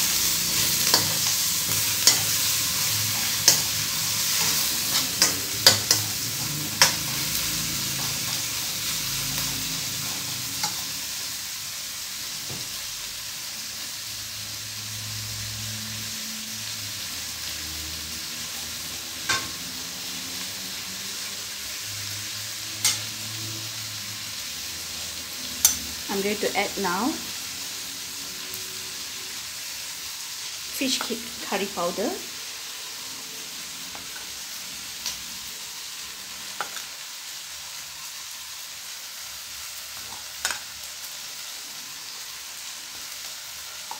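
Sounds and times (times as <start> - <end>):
food sizzling in hot oil: 0.0 - 43.9
utensil clicking on pan: 3.4 - 6.2, 6.8 - 7.1.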